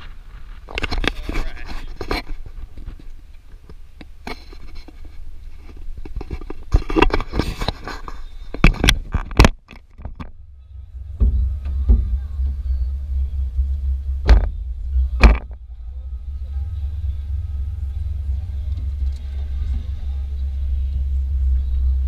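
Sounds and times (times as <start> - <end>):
wind rumble on microphone: 0.0 - 22.0
loud steady low rumble: 10.0 - 22.0.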